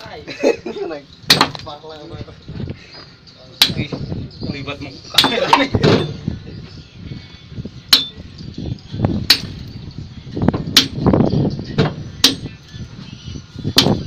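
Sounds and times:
hammer striking steel chisel: 5.2 - 5.6, 7.9 - 8.2, 10.8 - 11.0, 12.2 - 12.5.

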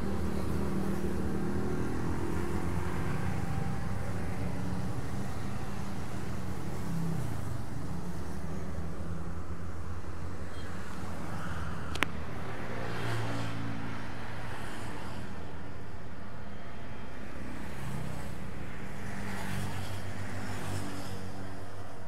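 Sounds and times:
motorcycle traffic engine hum: 0.0 - 14.6.

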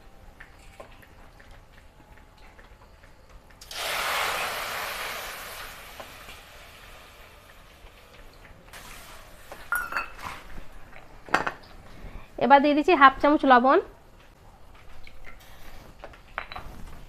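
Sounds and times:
water pouring into a pot: 3.6 - 10.0
kitchenware clinking: 9.7 - 11.8, 16.3 - 17.0.

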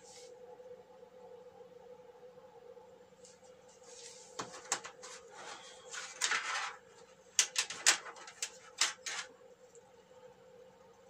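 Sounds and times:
faint steady hum: 0.0 - 11.0
rustling: 3.8 - 9.3.

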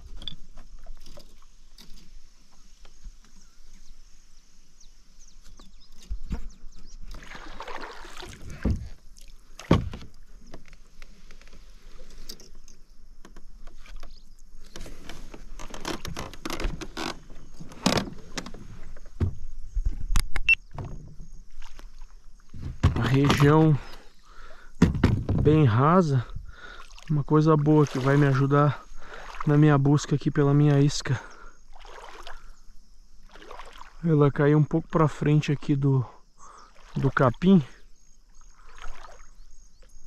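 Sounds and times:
kayak paddle swishing and splashing: 0.0 - 12.3, 20.8 - 25.7, 26.3 - 29.8, 31.7 - 34.0, 36.5 - 37.4, 38.3 - 40.0.

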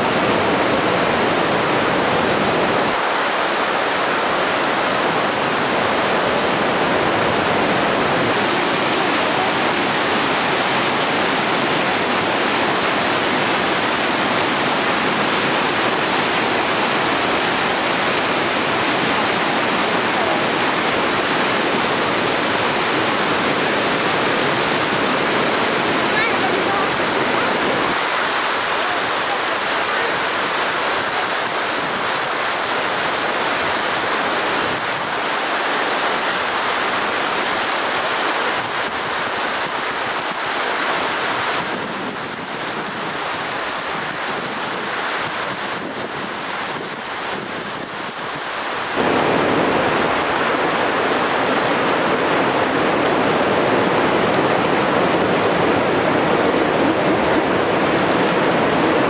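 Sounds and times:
river rushing over rocks: 0.0 - 59.0.

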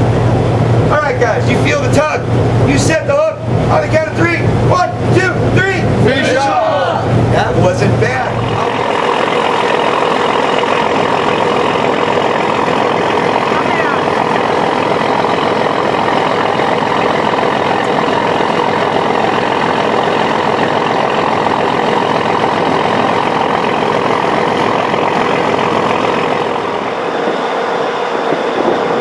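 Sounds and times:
boat engine running: 0.0 - 29.0
dense rushing noise: 6.8 - 29.0.

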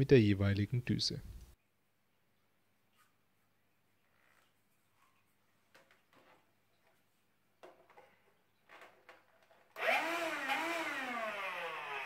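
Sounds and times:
handheld vacuum motor whine: 9.8 - 12.0.

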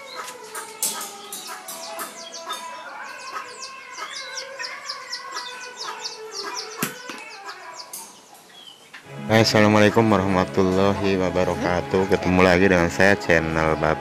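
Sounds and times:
chickens chirping: 0.0 - 14.0.

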